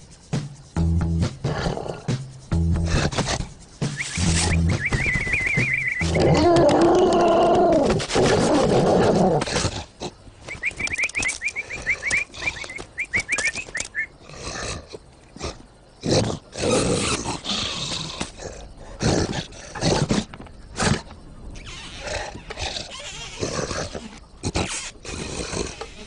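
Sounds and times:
high chirps: 0:03.7 - 0:06.2, 0:10.5 - 0:14.2.

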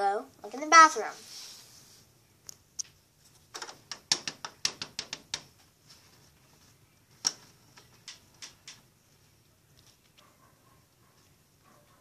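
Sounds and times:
plastic doll clicks and taps: 0:03.6 - 0:05.5.

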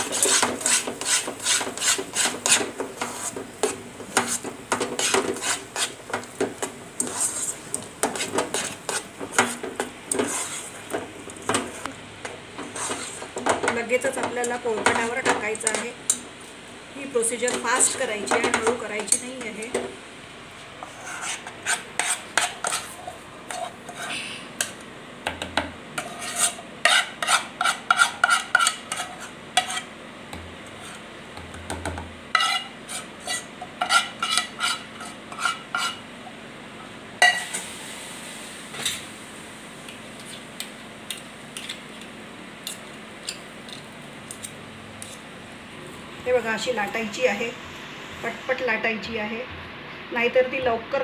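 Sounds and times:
metal spoon scraping a pot: 0:00.0 - 0:06.2, 0:07.0 - 0:10.8, 0:12.6 - 0:13.3, 0:20.8 - 0:24.2, 0:26.0 - 0:29.9, 0:32.3 - 0:36.0.

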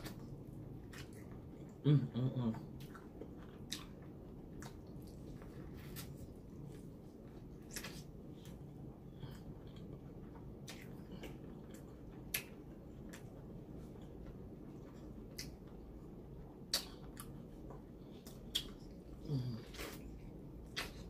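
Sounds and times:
steady low hum: 0:00.0 - 0:21.0
mouth clicks and smacks chewing: 0:10.6 - 0:13.4, 0:15.3 - 0:15.7, 0:16.7 - 0:19.0.

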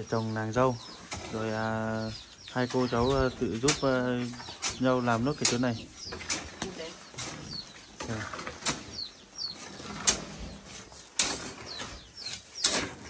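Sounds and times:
small birds chirping: 0:00.0 - 0:13.0
trowel scraping wet cement: 0:09.6 - 0:13.0.

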